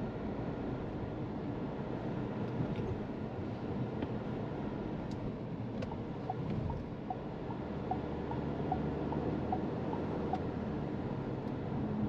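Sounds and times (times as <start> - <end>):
low engine hum: 0.0 - 12.0
road and tyre noise: 0.0 - 12.0.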